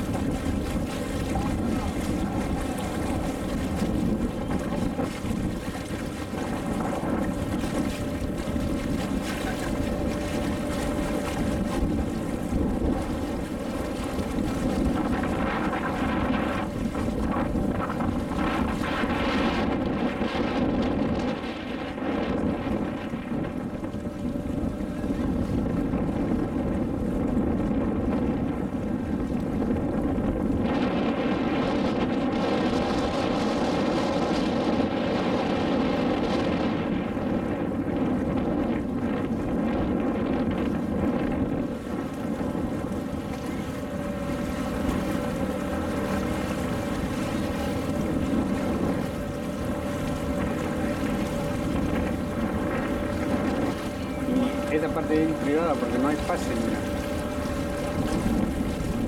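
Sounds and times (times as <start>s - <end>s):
water rushing: 0.0s - 27.3s, 39.2s - 59.0s
boat engine droning hum: 0.0s - 59.0s
wind noise on microphone: 0.0s - 59.0s.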